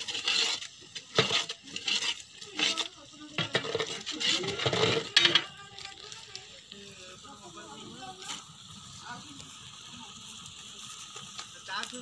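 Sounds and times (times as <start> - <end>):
metal spatula scraping a pot: 0.0 - 6.3
masala sizzling: 0.0 - 12.0.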